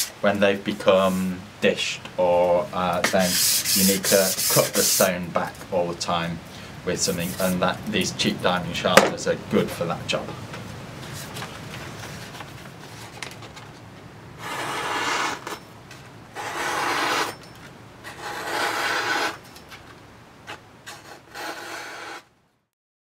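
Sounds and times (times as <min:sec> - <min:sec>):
packing paper rustling: 0:11.0 - 0:13.9.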